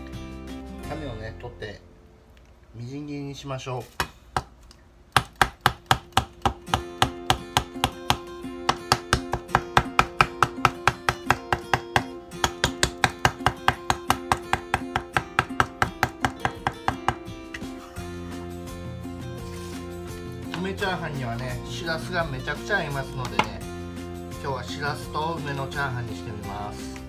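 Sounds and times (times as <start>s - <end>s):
acoustic guitar music: 0.0s - 2.3s, 5.8s - 27.0s
cleaver chopping on cutting board: 5.2s - 17.6s.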